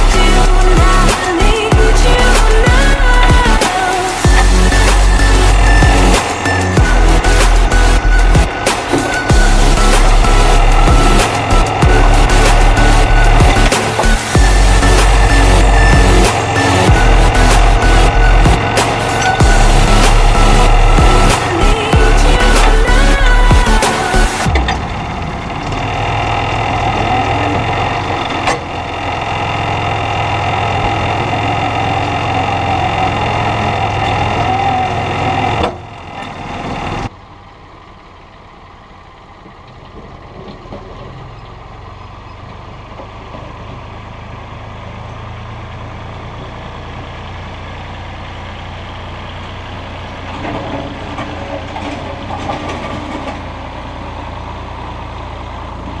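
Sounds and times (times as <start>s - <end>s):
steady whine: 0.0s - 25.9s
tractor diesel engine running: 0.0s - 56.0s.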